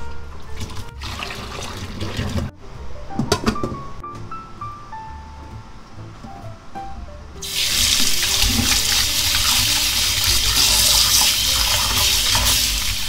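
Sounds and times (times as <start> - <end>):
soft background music: 0.0 - 13.0
tap water running into metal bowl: 0.6 - 2.5, 7.4 - 13.0
hands rinsing fish: 7.4 - 13.0.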